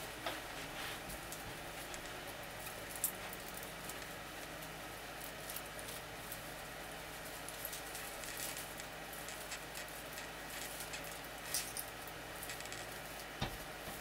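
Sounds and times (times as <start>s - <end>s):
plastic branches rustling: 0.0s - 14.0s
steady low hum: 0.0s - 14.0s.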